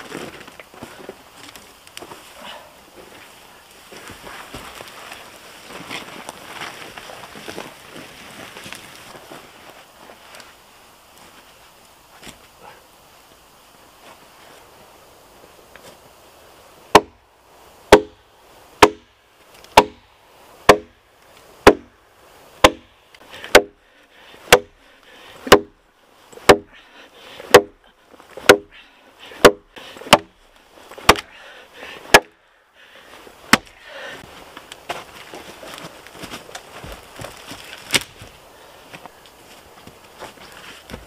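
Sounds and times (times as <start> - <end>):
hatchet chopping log: 16.9 - 17.2, 17.9 - 18.2, 18.8 - 19.1, 19.7 - 20.0, 20.7 - 21.0, 21.6 - 21.9, 22.6 - 22.9, 23.5 - 23.8, 24.5 - 24.8, 25.4 - 25.8, 26.4 - 26.7, 27.5 - 27.8, 28.4 - 28.7, 29.4 - 30.4, 31.0 - 31.3, 32.1 - 32.4, 33.5 - 33.7.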